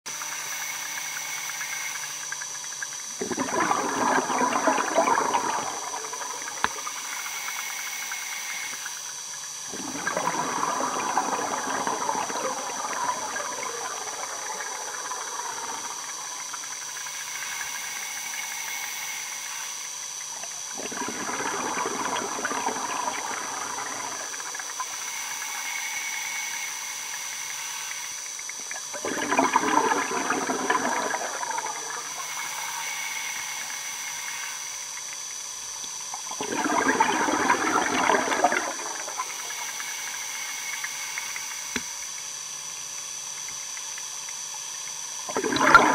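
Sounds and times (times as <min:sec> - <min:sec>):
underwater bubbling bursts: 0:00.1 - 0:07.7, 0:09.0 - 0:18.4, 0:20.1 - 0:25.6, 0:28.2 - 0:33.8, 0:34.9 - 0:39.9, 0:43.4 - 0:45.9
steady hiss: 0:00.1 - 0:45.4
faint high whine: 0:00.1 - 0:45.9.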